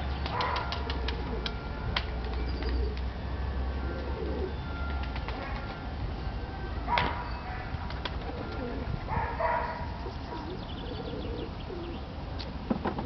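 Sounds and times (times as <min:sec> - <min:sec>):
bird cooing softly: 0:03.8 - 0:05.7, 0:08.2 - 0:09.0, 0:10.0 - 0:12.0.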